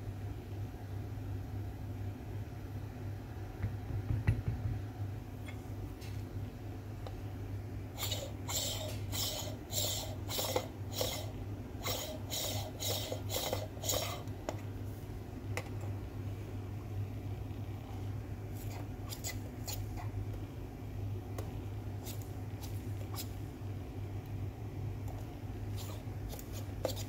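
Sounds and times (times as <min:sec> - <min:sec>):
metal tool scraping coffee grounds: 0:25.8 - 0:27.0.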